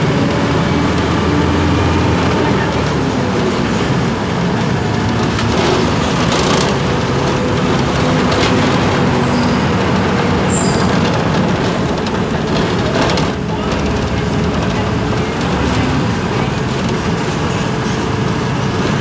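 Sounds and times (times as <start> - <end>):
bus engine: 0.0 - 19.0
road noise: 0.0 - 19.0.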